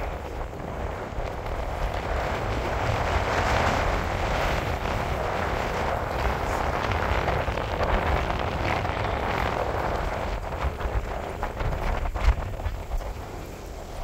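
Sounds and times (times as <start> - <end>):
low rumble: 0.0 - 14.0
wind rushing over microphone: 0.0 - 14.0.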